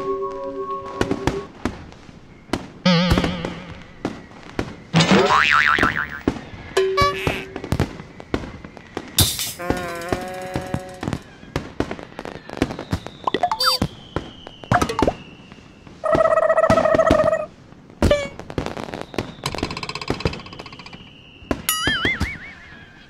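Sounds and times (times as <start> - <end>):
firework whistling glides: 0.0 - 5.0, 5.9 - 17.6, 18.2 - 23.0
firework pops and bangs: 1.0 - 5.0, 7.5 - 16.0, 16.7 - 22.4.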